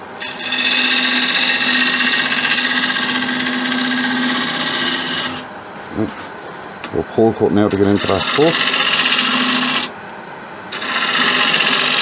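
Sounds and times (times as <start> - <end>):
lathe motor hum: 0.0 - 10.0, 10.6 - 12.0
gouge hissing on spinning wood: 0.2 - 5.4, 7.7 - 9.9, 10.7 - 12.0.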